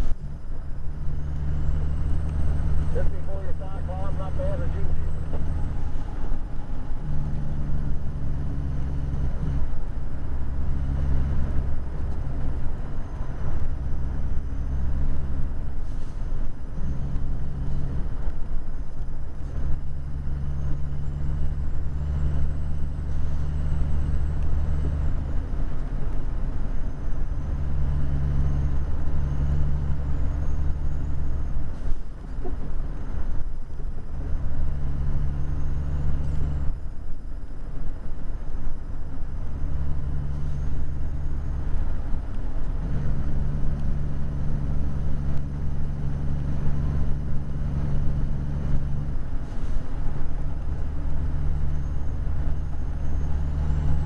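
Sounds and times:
road noise: 0.0s - 54.0s
truck diesel engine droning: 0.0s - 54.0s.

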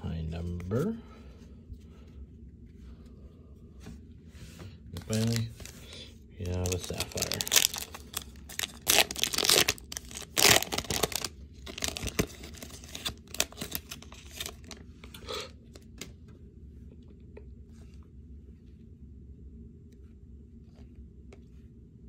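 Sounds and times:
wrapper crinkling: 5.0s - 5.8s, 6.4s - 14.8s
foil pack tearing: 6.4s - 14.8s.

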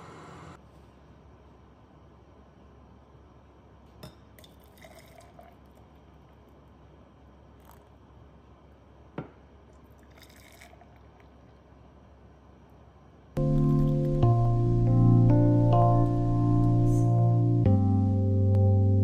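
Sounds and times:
syrup trickling into jars: 4.4s - 6.1s, 9.8s - 11.4s.

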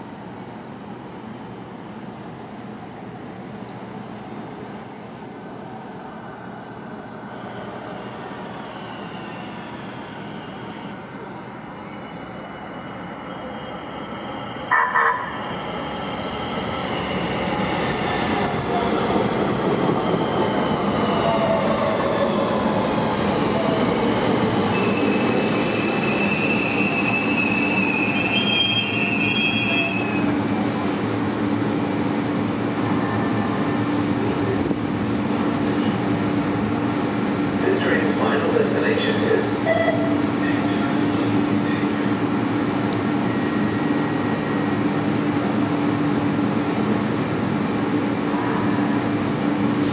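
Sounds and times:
steady train hum: 0.0s - 49.9s
train wheels squealing: 6.5s - 14.7s, 19.7s - 30.4s, 43.2s - 44.8s.

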